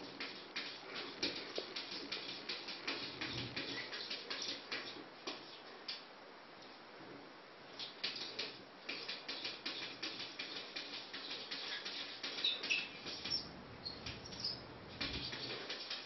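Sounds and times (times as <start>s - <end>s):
kitten squeaks: 12.4s - 14.6s.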